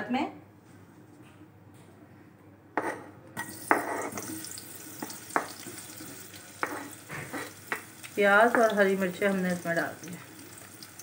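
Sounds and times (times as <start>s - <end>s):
onions sizzling in hot oil: 3.4s - 11.0s
spoon knocking board and pot: 5.0s - 5.6s.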